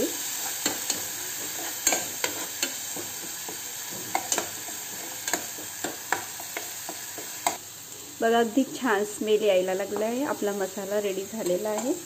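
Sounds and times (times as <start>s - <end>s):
paste sizzling in hot oil: 0.0s - 12.0s
steel ladle scraping pan: 0.3s - 3.1s.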